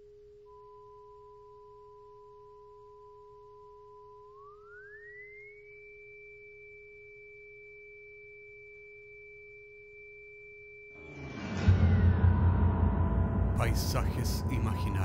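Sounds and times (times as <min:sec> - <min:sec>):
noisy swell with deep rumble: 0:11.0 - 0:15.0
steady low synth tone: 0:11.0 - 0:15.0.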